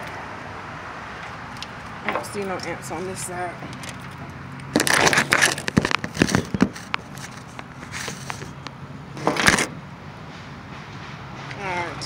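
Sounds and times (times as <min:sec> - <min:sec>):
phone being handled: 0:03.8 - 0:09.7.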